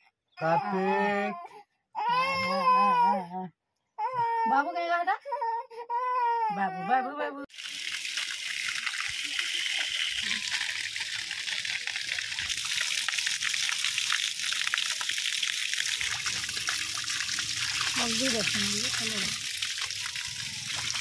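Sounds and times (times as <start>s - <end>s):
water gushing onto stone: 7.5s - 21.0s.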